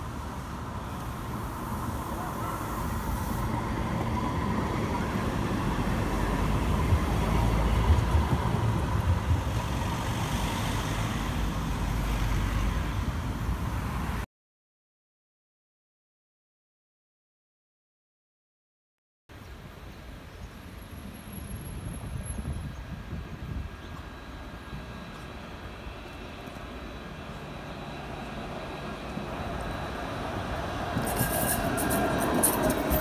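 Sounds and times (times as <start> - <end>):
electric tram passing: 0.0 - 14.2, 20.6 - 33.0.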